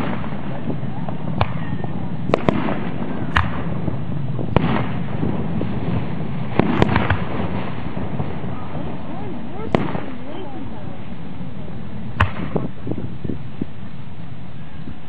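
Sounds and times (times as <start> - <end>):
fireworks bangs: 0.0 - 14.0
steady background noise: 0.0 - 15.0.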